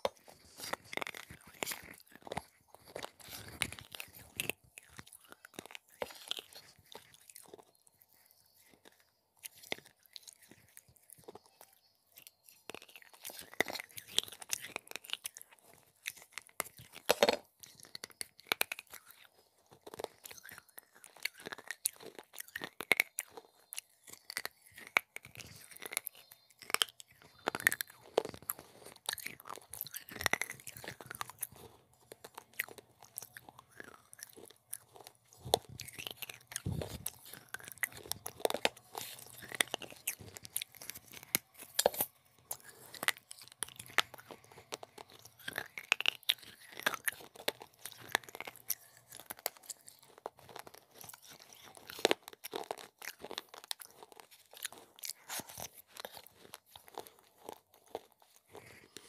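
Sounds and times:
clay pot pieces crunching: 0.0 - 59.0
sharp cracks of biting: 16.0 - 59.0.

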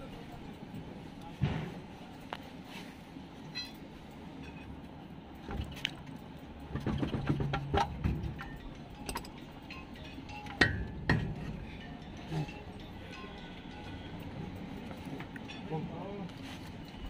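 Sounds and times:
spanner clinking on metal: 7.5 - 13.5.

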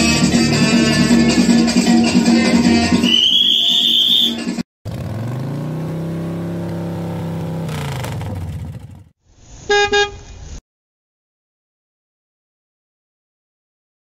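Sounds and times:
car engine revving: 4.9 - 9.1
car horn toots: 9.7 - 10.3.

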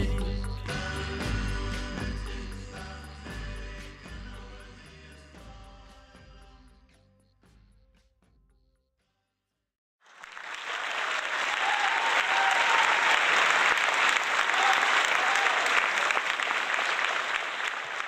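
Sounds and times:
audience applauding: 10.0 - 18.0.

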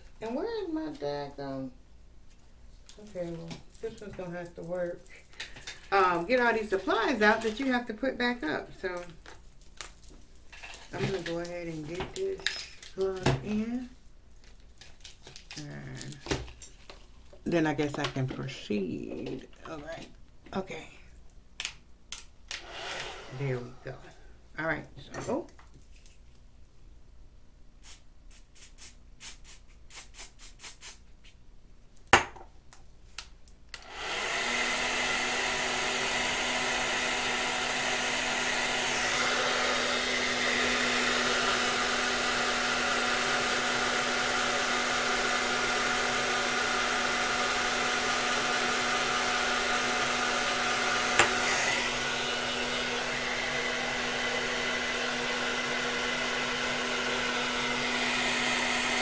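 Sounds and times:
hair dryer running: 5.6 - 9.0, 10.9 - 13.5, 22.5 - 24.2, 33.8 - 59.0.

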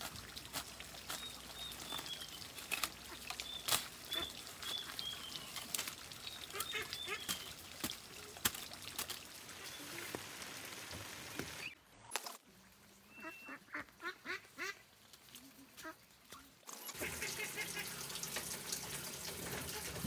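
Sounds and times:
ducks quacking: 6.5 - 7.4, 13.1 - 14.8, 17.0 - 18.0.

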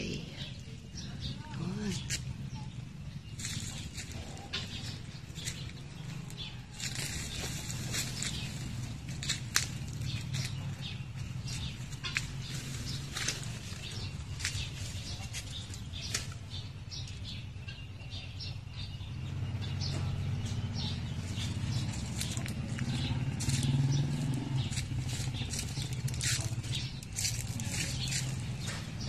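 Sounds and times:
leaves and twigs rustling: 3.3 - 16.8, 21.1 - 29.0.

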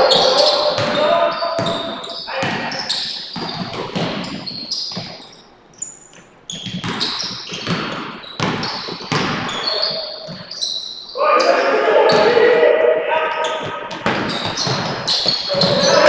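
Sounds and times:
basketball bouncing: 0.0 - 5.4, 6.1 - 10.7, 13.4 - 16.0
sneakers squeaking: 0.0 - 16.0.

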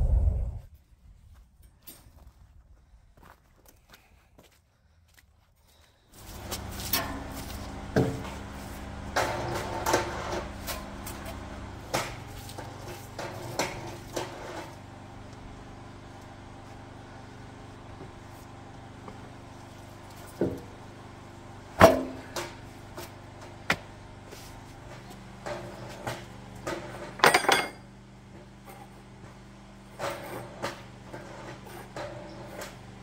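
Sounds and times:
steady low hum: 0.0 - 33.0
metal sawhorse knocks and clatters: 25.4 - 27.8.

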